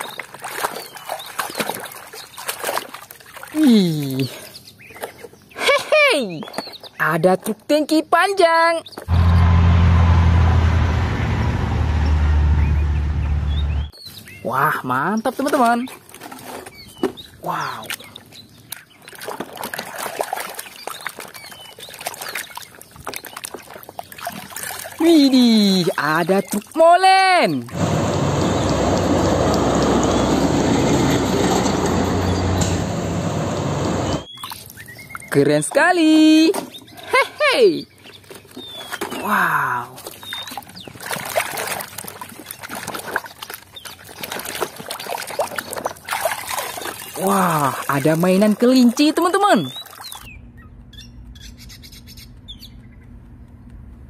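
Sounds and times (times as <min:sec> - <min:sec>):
hand squelching through wet mud: 0:00.0 - 0:05.2, 0:17.6 - 0:25.3, 0:39.9 - 0:49.0
water sloshing in a plastic basin: 0:00.0 - 0:05.4, 0:15.3 - 0:27.8, 0:38.1 - 0:50.3.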